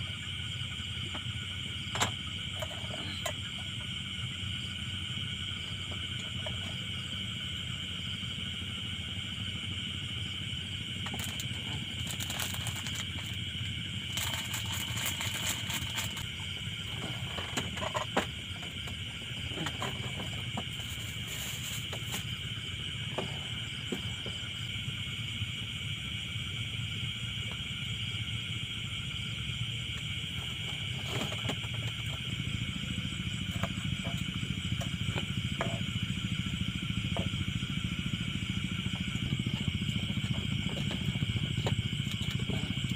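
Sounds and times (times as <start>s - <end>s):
crickets trilling: 0.0s - 42.9s
low steady rumble: 0.0s - 42.9s.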